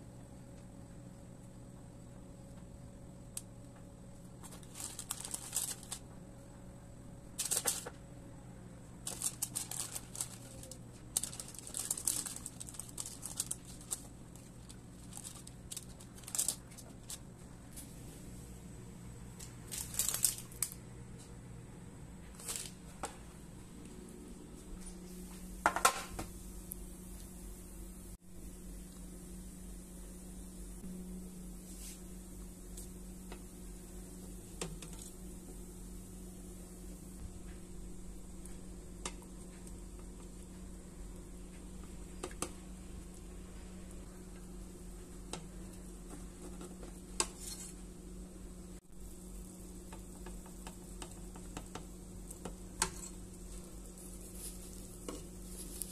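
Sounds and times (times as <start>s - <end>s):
low steady hum: 0.0s - 55.9s
baking parchment crinkling: 4.3s - 6.1s, 7.4s - 8.0s, 9.0s - 17.9s, 19.4s - 20.8s, 22.2s - 23.0s, 42.4s - 47.9s, 49.2s - 55.9s
soft even hiss: 47.1s - 55.9s.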